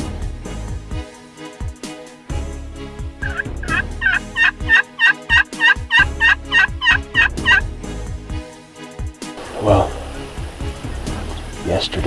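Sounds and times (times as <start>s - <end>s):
turkey call yelps: 3.2s - 7.7s.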